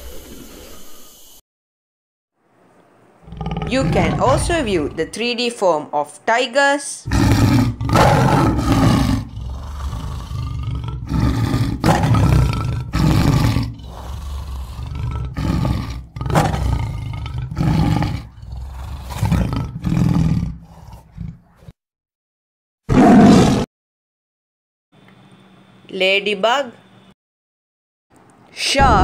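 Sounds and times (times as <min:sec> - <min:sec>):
tiger growling and roaring: 0:03.2 - 0:05.2, 0:07.1 - 0:21.8, 0:22.9 - 0:23.7.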